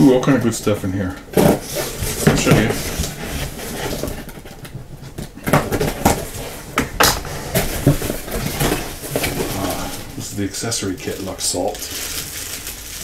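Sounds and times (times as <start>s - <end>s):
cardboard flaps and tape rustling: 0.3s - 13.0s
cardboard knocks and clicks: 1.3s - 9.8s.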